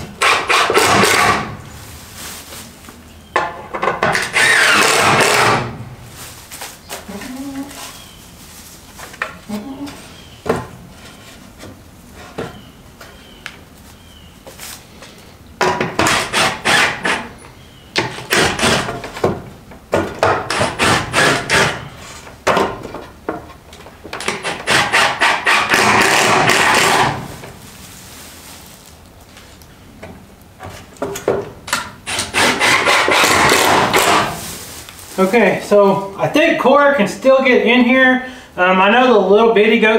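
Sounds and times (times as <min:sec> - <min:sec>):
hammer striking wooden boards: 0:18.0 - 0:21.8, 0:24.2 - 0:27.2, 0:31.7 - 0:34.3.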